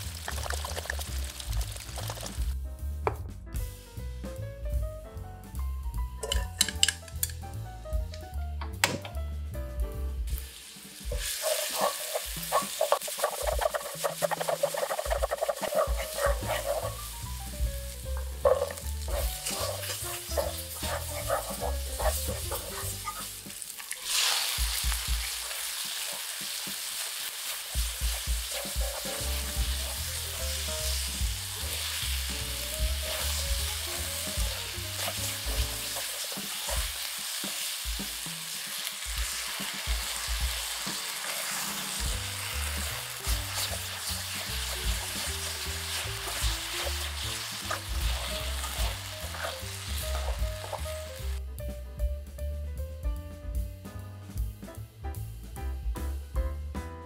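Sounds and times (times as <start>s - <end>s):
oil sizzling in a frying pan: 0.0s - 2.6s, 10.1s - 51.4s.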